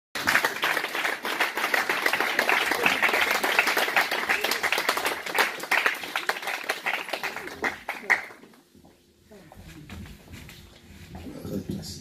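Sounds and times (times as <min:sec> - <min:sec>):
crowd applauding: 0:00.2 - 0:08.6.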